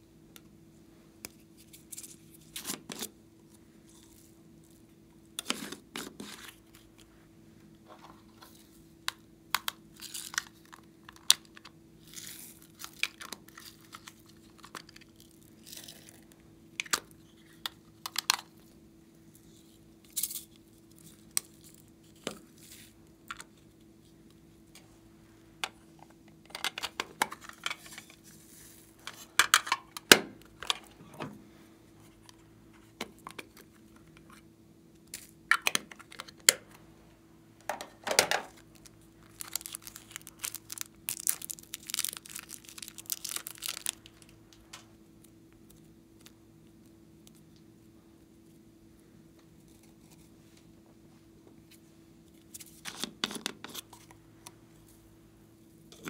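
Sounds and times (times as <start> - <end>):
plastic containers handled: 25.6 - 28.2.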